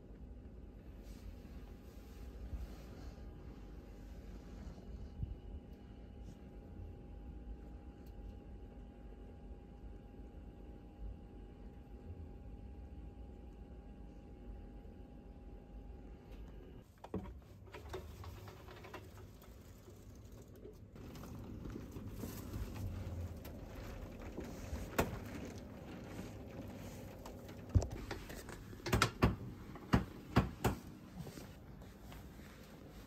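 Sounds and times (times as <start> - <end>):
soft rustling and handling: 16.8 - 28.8, 29.6 - 33.0.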